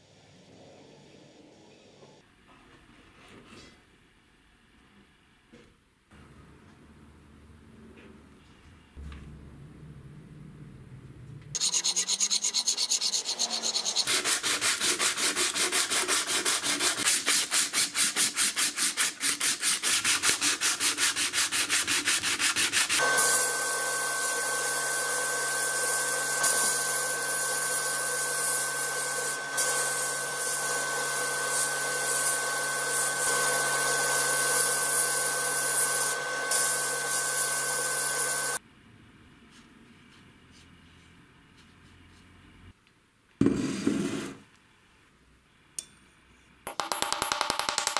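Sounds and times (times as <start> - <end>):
hand file scraping wood: 11.6 - 23.0
sandblasting gun hissing: 23.0 - 38.6.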